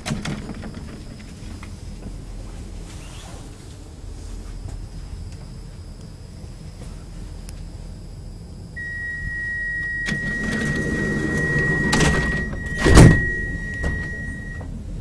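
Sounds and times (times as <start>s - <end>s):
sliding train doors closing: 0.0s - 3.7s, 9.8s - 14.9s
high warning tone: 8.8s - 14.7s
door thud: 11.9s - 14.2s.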